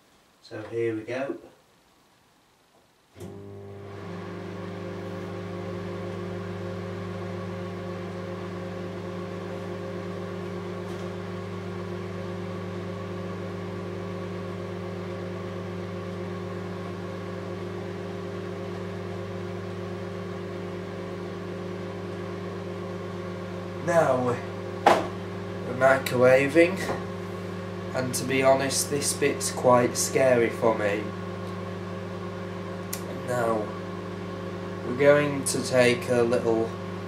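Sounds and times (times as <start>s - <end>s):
microwave oven humming: 3.2s - 37.0s.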